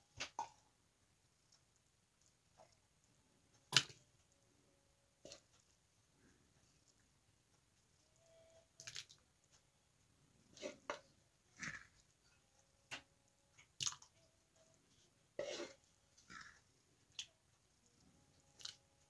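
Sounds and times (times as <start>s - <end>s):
cup scraping pot: 15.4s - 16.6s.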